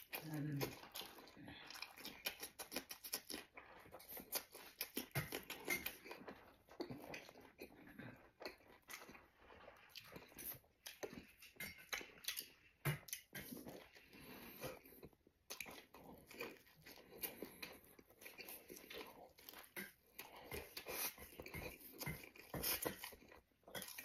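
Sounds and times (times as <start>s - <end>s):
person chewing and crunching food: 0.0s - 24.0s.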